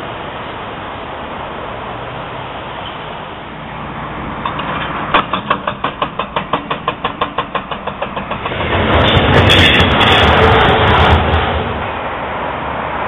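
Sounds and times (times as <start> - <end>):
freight train passing: 0.0 - 13.0
hydraulic breaker hammering concrete: 4.4 - 10.5.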